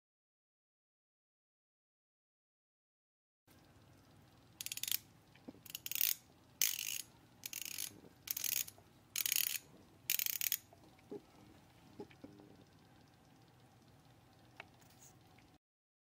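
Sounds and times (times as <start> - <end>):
ratcheting bezel clicks: 4.6 - 5.0, 5.7 - 10.7.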